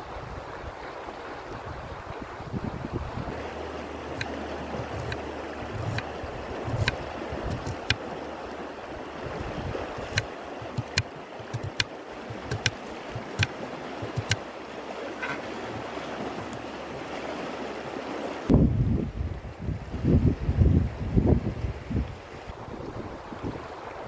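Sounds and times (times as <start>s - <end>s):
river flowing: 0.0s - 18.6s, 22.2s - 24.0s
knife slicing onion: 4.1s - 8.0s, 10.0s - 14.4s
knife tapping on cutting board: 4.2s - 6.0s, 6.7s - 8.0s, 10.0s - 14.4s.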